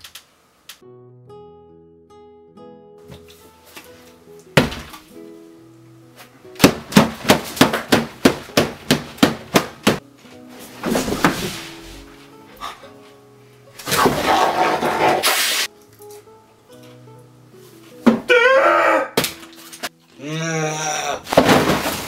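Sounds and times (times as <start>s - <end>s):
soft acoustic guitar music: 0.8s - 6.9s, 9.7s - 14.0s, 15.7s - 18.3s, 19.4s - 20.8s
scuffling: 6.1s - 13.2s.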